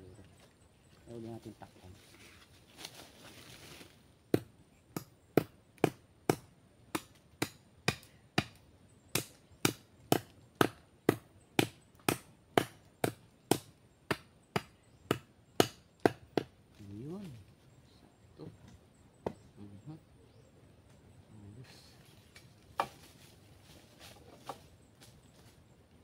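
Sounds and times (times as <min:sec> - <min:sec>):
chopping wood: 0:04.3 - 0:16.5, 0:22.8 - 0:23.0.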